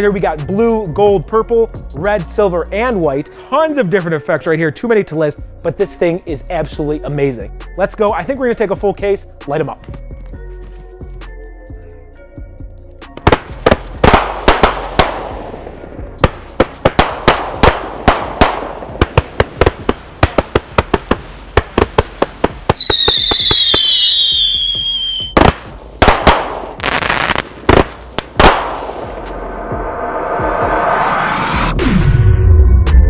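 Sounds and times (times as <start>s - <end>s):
firework crackling: 13.2s - 15.6s, 16.2s - 29.4s
firework launch thumps and bangs: 13.2s - 15.6s, 16.2s - 24.0s, 25.2s - 29.2s
falling whistle: 22.8s - 25.4s.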